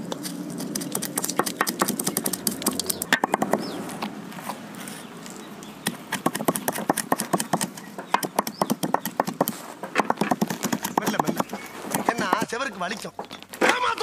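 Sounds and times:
stone roller grinding seeds: 0.0s - 3.3s
seeds cracking: 0.0s - 7.8s.

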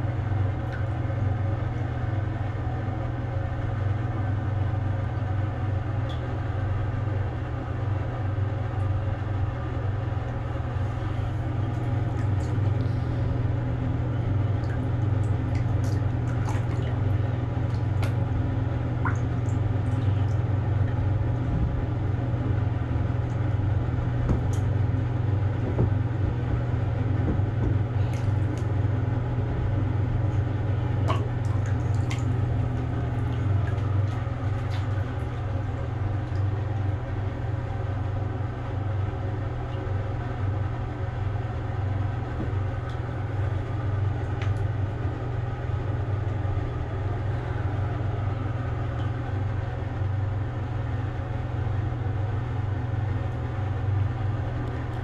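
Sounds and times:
low mechanical hum: 0.0s - 55.0s
bathwater splashing and dripping: 0.4s - 1.9s, 10.7s - 37.4s, 42.4s - 45.0s.

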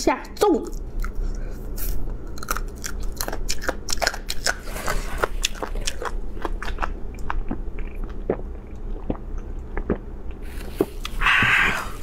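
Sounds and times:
chewing chicken with crunching: 0.7s - 10.0s.

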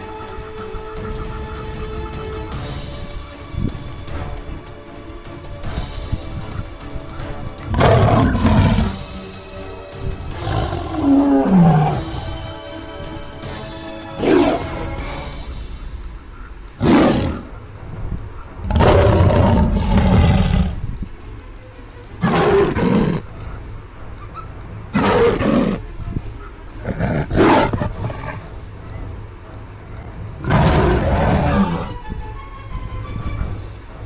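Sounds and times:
lion roaring: 7.6s - 9.1s, 10.3s - 12.4s, 14.2s - 14.8s, 16.8s - 17.5s, 18.6s - 20.9s, 22.2s - 23.3s, 24.9s - 25.8s, 26.8s - 28.5s, 30.4s - 32.0s.

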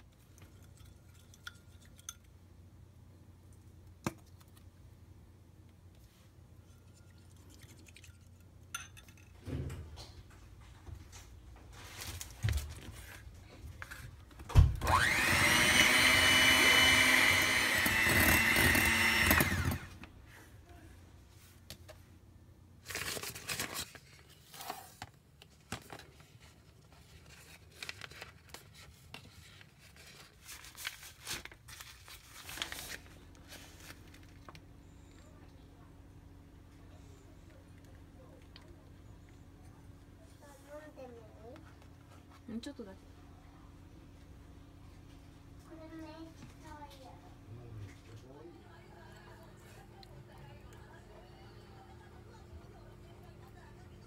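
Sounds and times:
electric hand mixer whirring: 14.8s - 20.1s.

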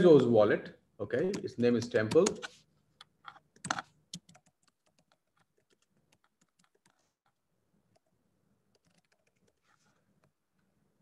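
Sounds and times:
typing on keyboard: 3.6s - 7.0s, 8.7s - 9.6s.

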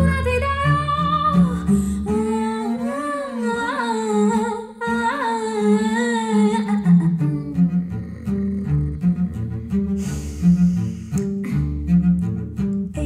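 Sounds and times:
plucked double bass: 0.0s - 5.2s, 5.8s - 13.0s
woman singing: 0.0s - 8.9s.

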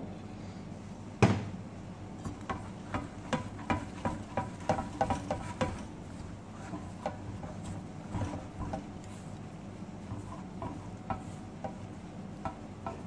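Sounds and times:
spatula scraping metal bowl: 2.2s - 9.4s, 10.0s - 13.0s.

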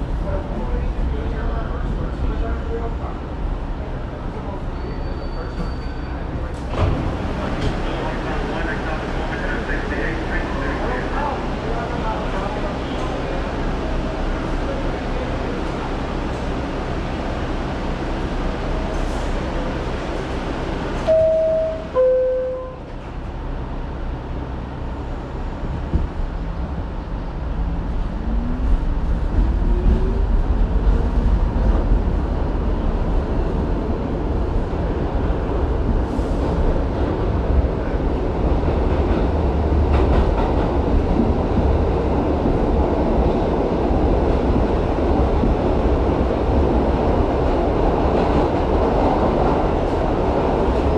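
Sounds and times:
train rail noise: 0.0s - 50.9s
two-note door chime: 21.1s - 22.8s.

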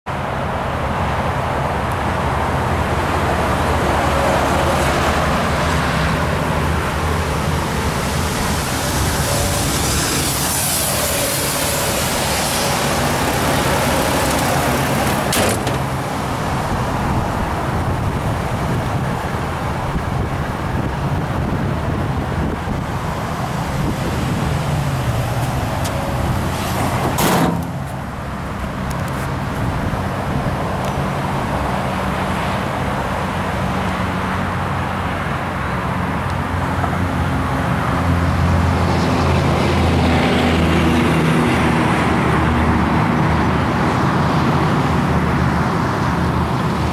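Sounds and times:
wind on microphone: 2.6s - 46.9s.

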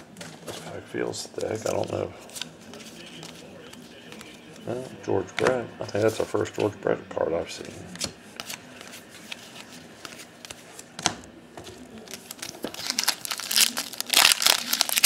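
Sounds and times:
foil wrapper crinkling: 12.0s - 15.0s.

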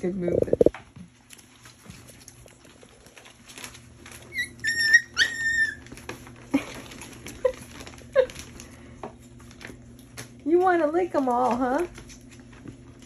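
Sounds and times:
puppies whining: 4.0s - 8.4s.

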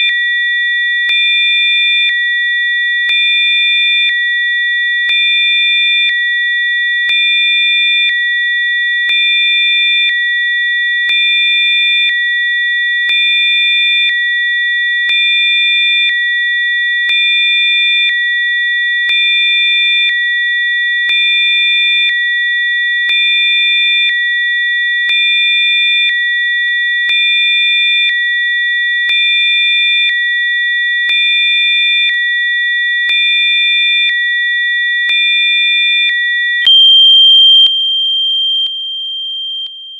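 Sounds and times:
electronic sine tones: 36.5s - 39.9s.

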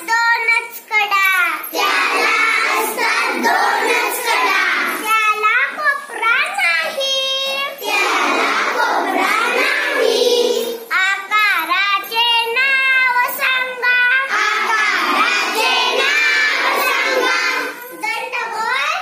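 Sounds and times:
children singing: 1.7s - 5.4s, 6.8s - 18.7s.

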